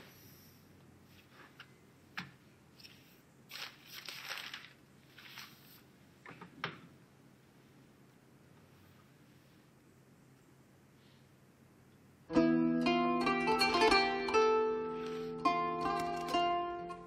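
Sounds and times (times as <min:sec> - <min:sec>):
paper rustling: 0:02.8 - 0:05.9.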